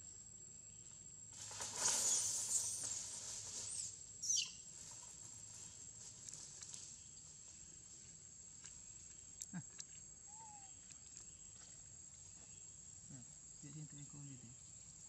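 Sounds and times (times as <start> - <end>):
high-pitched insect drone: 1.5 - 4.6.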